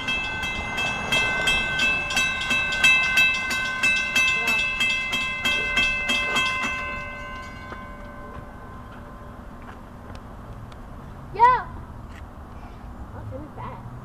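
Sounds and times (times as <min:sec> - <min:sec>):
railroad crossing bell ringing: 0:00.0 - 0:10.0.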